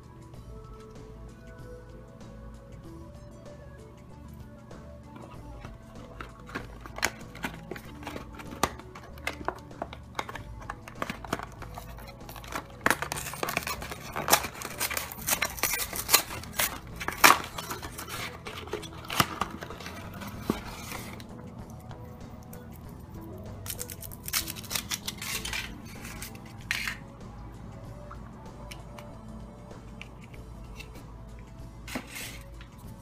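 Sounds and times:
foil wrapping crinkling: 0:05.2 - 0:21.3, 0:23.6 - 0:26.9
cardboard box tearing: 0:06.0 - 0:21.2.

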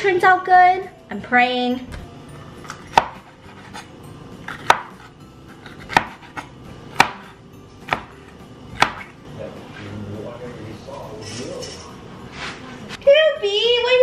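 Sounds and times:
knife slicing pepper: 0:02.6 - 0:08.2.

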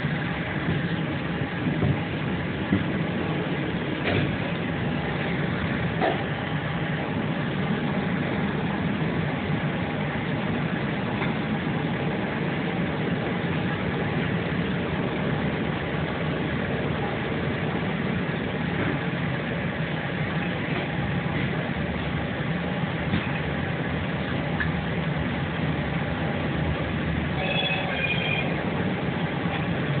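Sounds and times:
train rumble inside carriage: 0:00.0 - 0:30.0.

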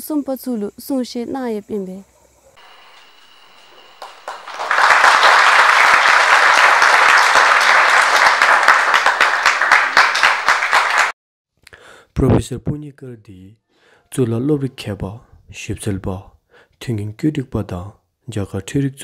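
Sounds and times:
audience applause: 0:02.6 - 0:11.2.

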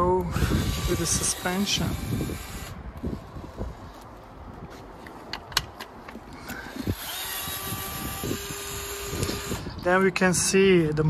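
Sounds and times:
cordless screwdriver running: 0:00.0 - 0:03.8, 0:06.5 - 0:10.0.

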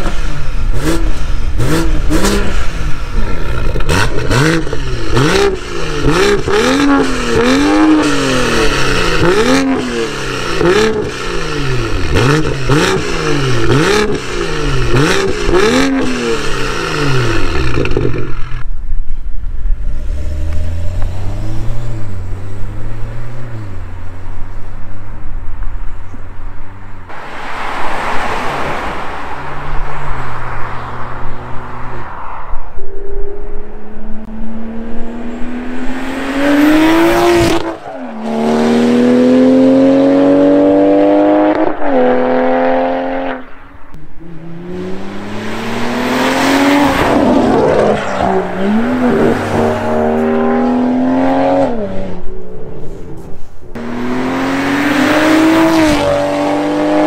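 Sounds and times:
car engine accelerating hard: 0:00.0 - 0:18.7, 0:34.2 - 0:43.4, 0:44.1 - 0:52.3, 0:53.2 - 0:57.0.

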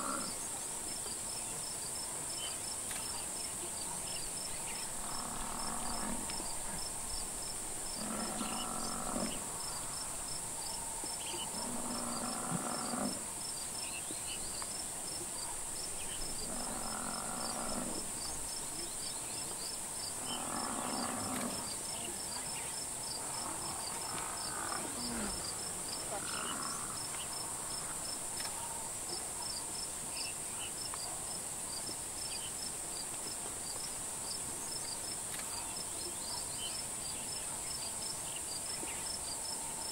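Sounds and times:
crickets chirping: 0:00.0 - 0:39.9
buffalo bellowing: 0:08.0 - 0:09.4.

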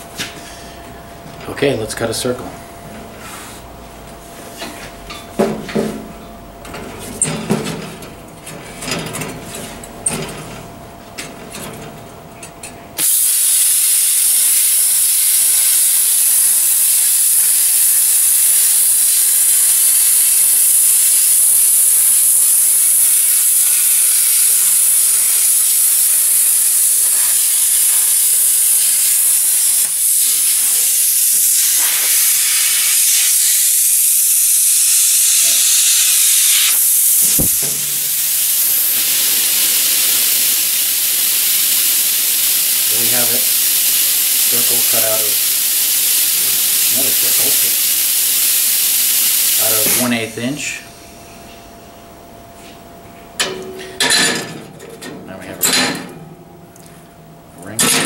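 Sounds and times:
plasma cutter hissing: 0:13.0 - 0:51.0.

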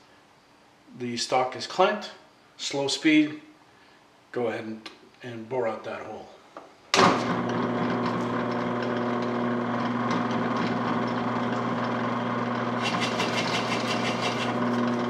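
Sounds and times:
drill press motor humming: 0:07.0 - 0:15.0
drill bit boring into wood: 0:07.3 - 0:15.0.

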